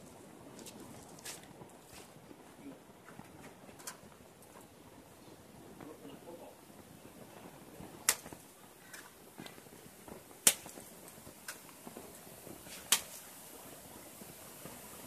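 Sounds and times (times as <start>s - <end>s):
wet mortar slapping wall: 8.0s - 9.6s, 10.3s - 11.7s, 12.6s - 13.3s.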